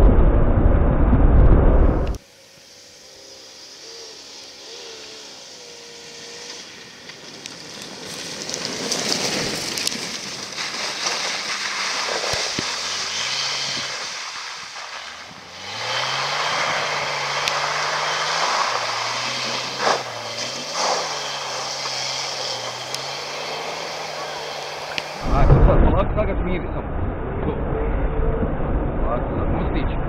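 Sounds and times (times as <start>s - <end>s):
car engine revving under load: 2.0s - 25.8s
tyres crunching on dirt: 4.8s - 25.6s.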